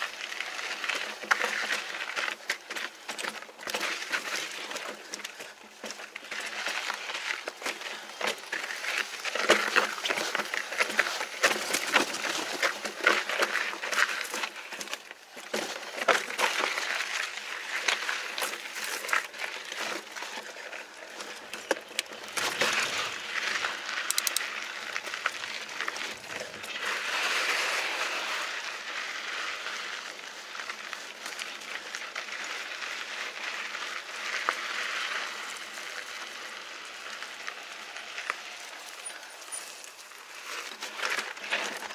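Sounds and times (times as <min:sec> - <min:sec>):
bike tyres crunching over rock: 0:00.0 - 0:41.9
bike rattling with sharp clicks: 0:21.1 - 0:26.8.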